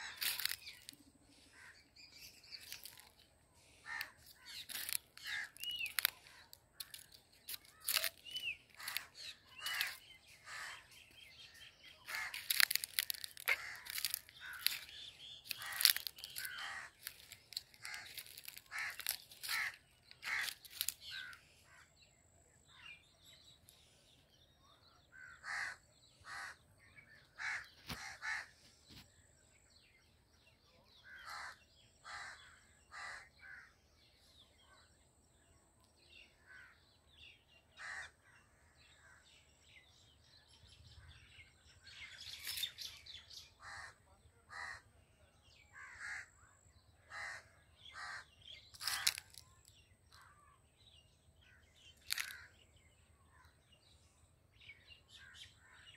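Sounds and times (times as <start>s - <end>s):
crows cawing: 0.0s - 1.9s, 2.6s - 11.1s, 12.0s - 21.9s, 25.1s - 26.6s, 27.4s - 28.6s, 31.0s - 33.7s, 37.8s - 38.2s, 43.6s - 44.8s, 45.8s - 46.4s, 47.1s - 49.4s, 52.1s - 52.5s.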